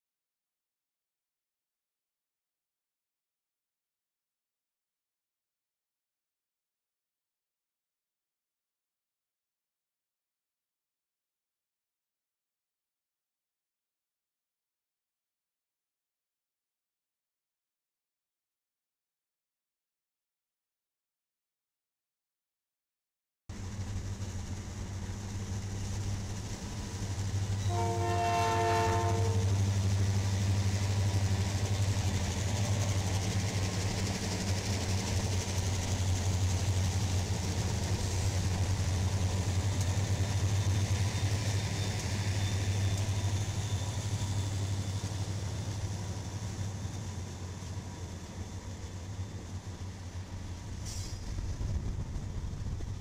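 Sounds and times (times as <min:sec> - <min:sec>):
diesel locomotive engine drone: 0:23.5 - 0:53.0
train horn blast: 0:27.6 - 0:29.7.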